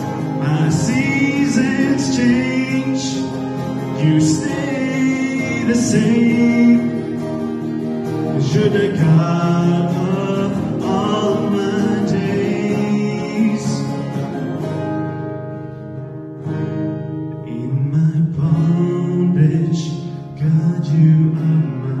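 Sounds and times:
man singing: 0.0s - 14.6s, 17.4s - 22.0s
guitar: 0.0s - 22.0s.

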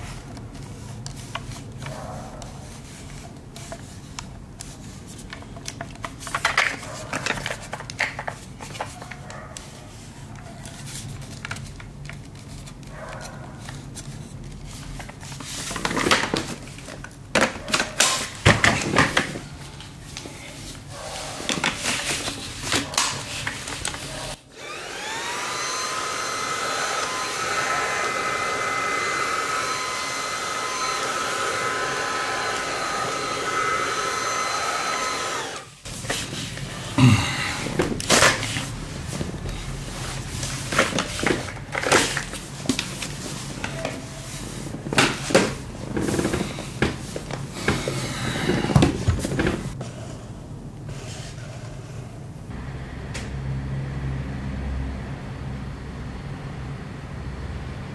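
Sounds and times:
clicks and knocks of parts handled: 5.2s - 9.3s
vacuum motor whine: 24.3s - 35.9s.

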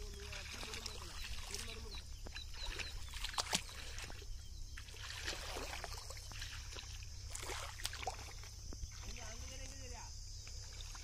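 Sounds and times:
muddy water sloshing: 0.0s - 11.0s.

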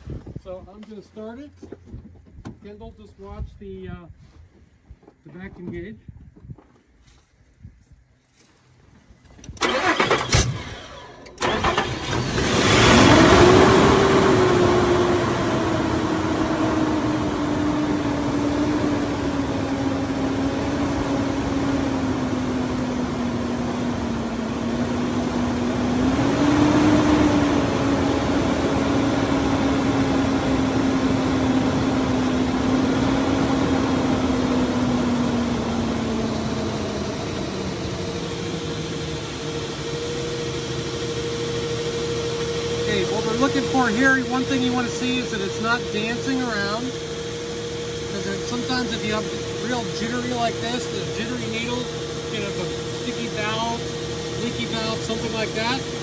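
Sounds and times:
starter cranking engine: 9.4s - 14.9s, 47.9s - 56.0s
car engine idling: 9.6s - 56.0s.

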